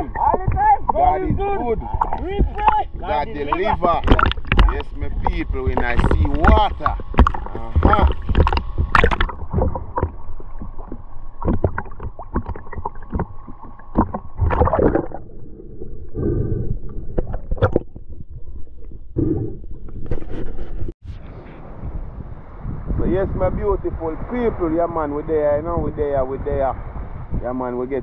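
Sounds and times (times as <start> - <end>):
water splashing around a boat: 0.0 - 20.4.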